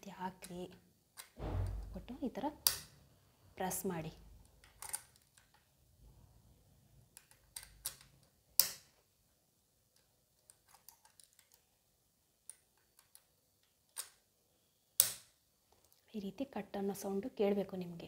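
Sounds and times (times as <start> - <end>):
small metallic clicks: 4.4 - 5.7, 7.1 - 8.9, 9.9 - 11.7, 12.5 - 14.2.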